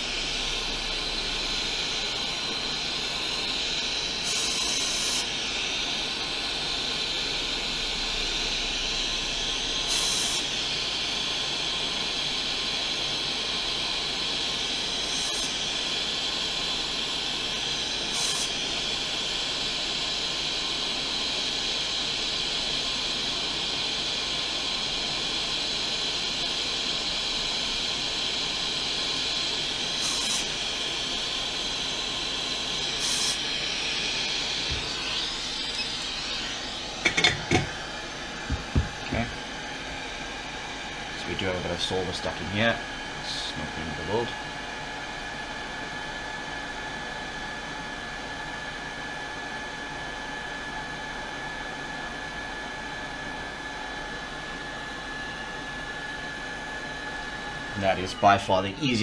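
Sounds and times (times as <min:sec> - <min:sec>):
compressed air blasts: 0:32.5 - 0:36.2.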